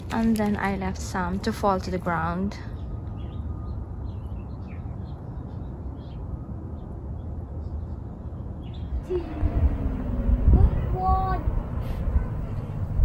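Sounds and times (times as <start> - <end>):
low background rumble: 8.7 - 13.0.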